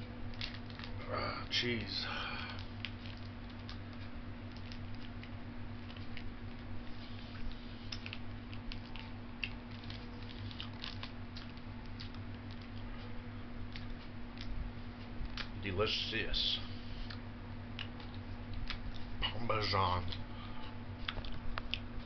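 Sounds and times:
steady low hum: 0.0 - 22.0
packet crinkling: 0.2 - 1.0, 7.9 - 12.8
small clicks and crackles: 0.2 - 1.6, 2.4 - 15.6.

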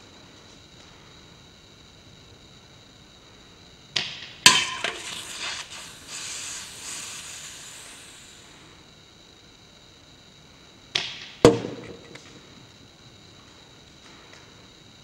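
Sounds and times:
soda spraying hiss: 4.4 - 9.2
can clattering over: 4.5 - 5.7.

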